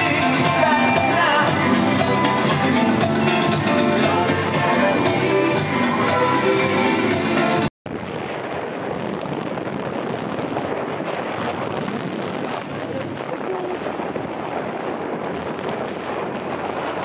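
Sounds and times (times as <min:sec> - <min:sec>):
music: 0:00.0 - 0:07.7
wind buffeting microphone: 0:07.9 - 0:17.0.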